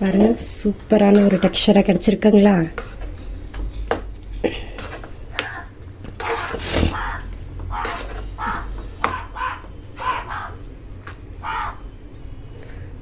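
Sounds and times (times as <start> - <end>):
metal ladle scraping a pan: 2.6 - 3.4, 6.1 - 8.8.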